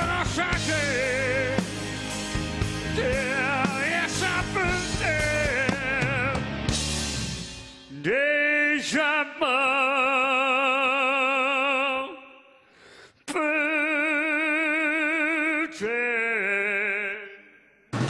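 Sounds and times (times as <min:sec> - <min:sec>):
man singing long notes: 0:02.9 - 0:06.5, 0:13.3 - 0:17.7.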